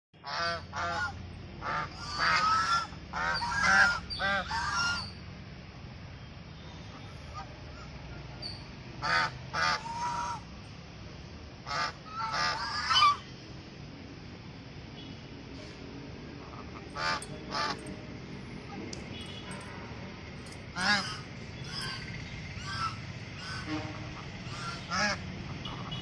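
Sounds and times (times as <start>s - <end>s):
geese honking: 0.2s - 5.2s, 9.0s - 10.5s, 11.6s - 13.2s, 16.4s - 17.9s, 20.8s - 26.0s.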